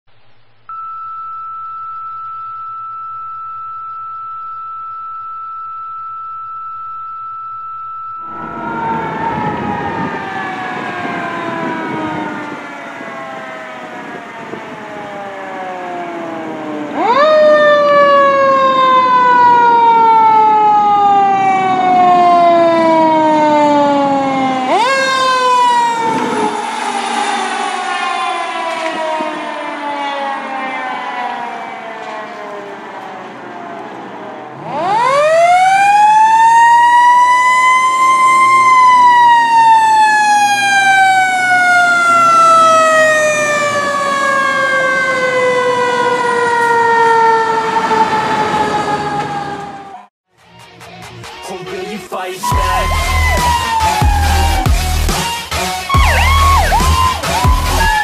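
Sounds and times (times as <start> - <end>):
steady high tone: 0.7 - 14.3, 24.6 - 32.5, 52.4 - 55.2, 55.8 - 58.0.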